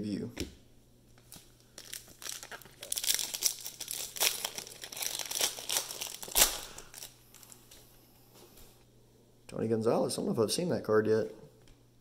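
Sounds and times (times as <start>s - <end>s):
cellophane wrapper crinkling and tearing: 1.2s - 7.8s.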